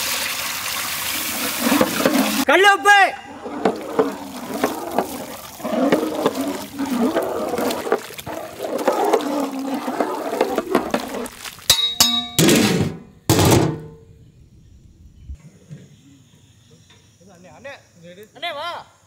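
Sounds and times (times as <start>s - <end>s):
paddle stirring thick liquid in pot: 1.3s - 2.5s, 3.3s - 12.2s
metallic clang: 11.7s - 14.1s.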